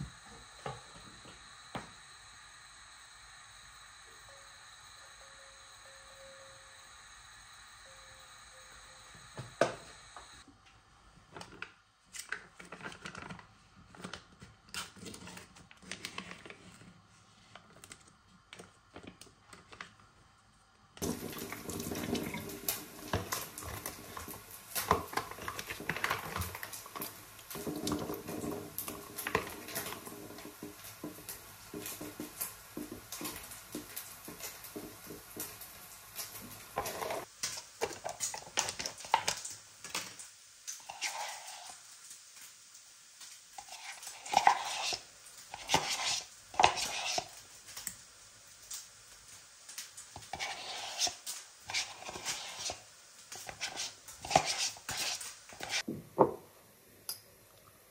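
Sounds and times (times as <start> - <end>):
water running into sink: 21.0 - 37.3.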